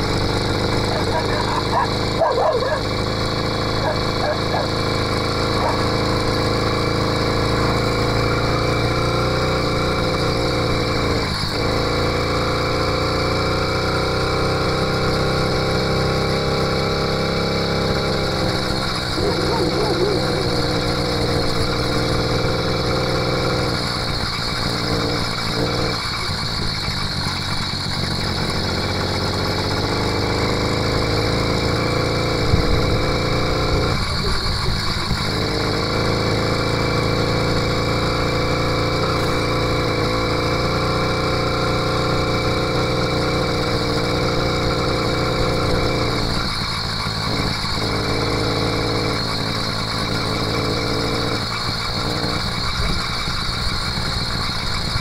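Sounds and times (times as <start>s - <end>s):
two-stroke engine running: 0.0s - 55.0s.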